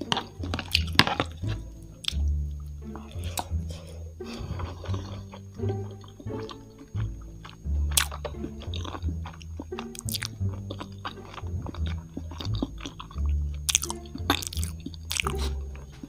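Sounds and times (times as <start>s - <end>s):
mouth clicks and smacks: 0.0s - 16.0s
person chewing: 0.0s - 16.0s.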